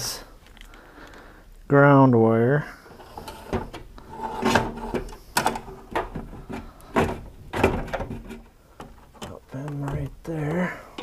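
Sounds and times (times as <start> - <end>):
wire scraping and knocking on steel: 2.9 - 10.1.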